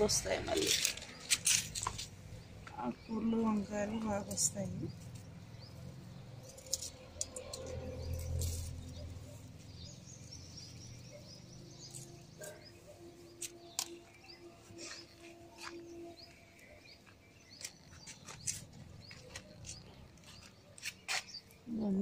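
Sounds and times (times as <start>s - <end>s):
tomato plants rustling: 0.0s - 5.3s, 11.8s - 22.0s
small birds chirping: 0.0s - 22.0s.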